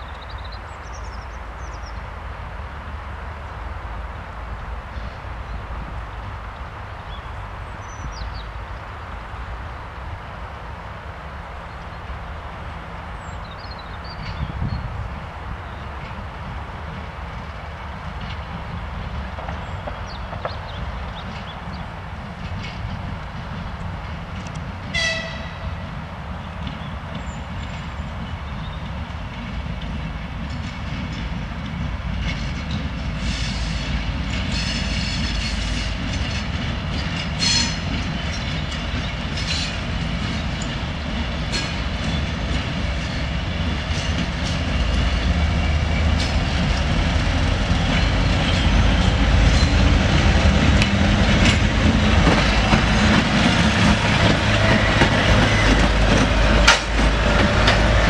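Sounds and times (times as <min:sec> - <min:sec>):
diesel locomotive engine rumble: 0:00.0 - 0:58.0
train horn toot: 0:24.9 - 0:25.8, 0:37.4 - 0:37.9
wheels clicking over rail joints: 0:33.9 - 0:58.0.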